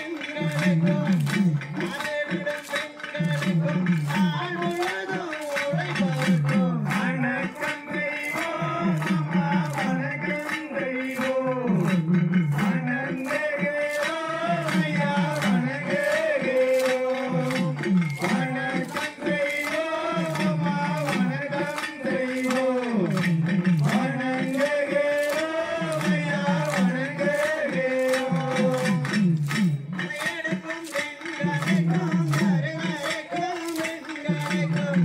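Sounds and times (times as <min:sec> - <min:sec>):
man singing in chanting style: 0:00.0 - 0:35.0
percussion in quick beat: 0:00.0 - 0:35.0.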